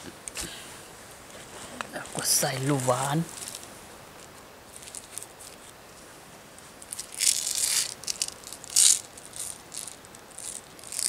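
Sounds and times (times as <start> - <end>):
light crackles: 0.0 - 11.0
seasoning shaken dry rattle: 6.9 - 11.0.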